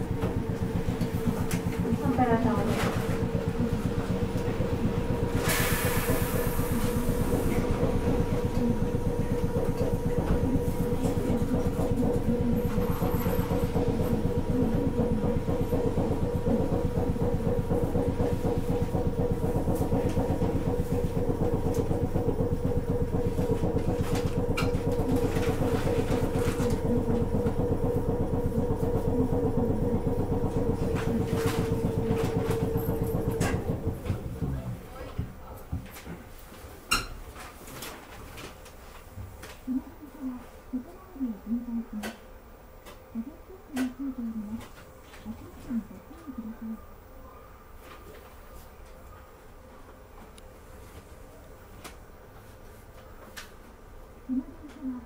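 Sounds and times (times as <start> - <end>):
streetcar machinery chugging: 0.0 - 36.3
hiss: 5.4 - 7.6.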